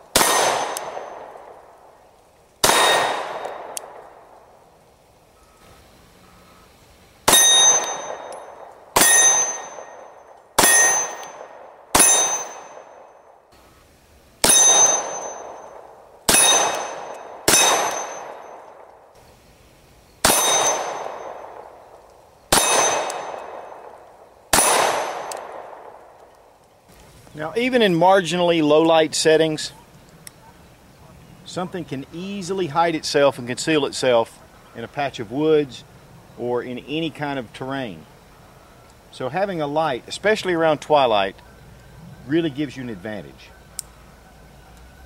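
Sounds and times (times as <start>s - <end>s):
pistol shots: 0.1s - 1.7s, 2.6s - 4.4s, 7.2s - 13.2s, 14.4s - 19.0s, 20.2s - 21.9s, 22.5s - 26.2s
steel target ringing: 7.3s - 13.4s, 14.4s - 18.7s, 20.2s - 21.6s, 22.5s - 23.9s, 24.5s - 25.5s.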